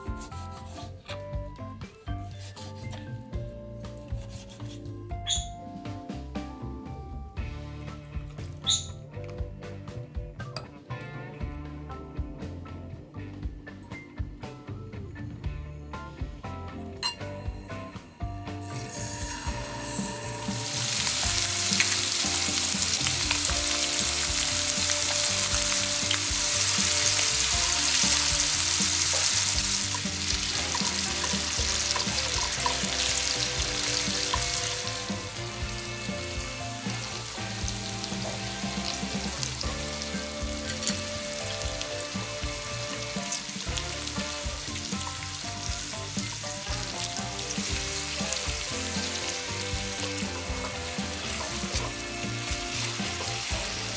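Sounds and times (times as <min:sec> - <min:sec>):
chopsticks turning food: 0:00.0 - 0:01.2, 0:02.3 - 0:03.3, 0:04.1 - 0:04.8, 0:18.7 - 0:35.8
chicken sizzling in hot oil: 0:18.6 - 0:53.9.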